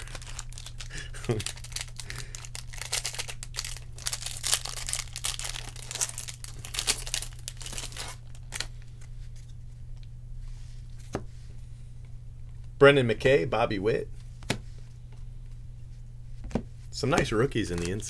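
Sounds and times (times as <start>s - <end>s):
foil pack crinkling: 0.0s - 9.1s, 17.2s - 18.0s
cards being handled: 16.4s - 18.0s.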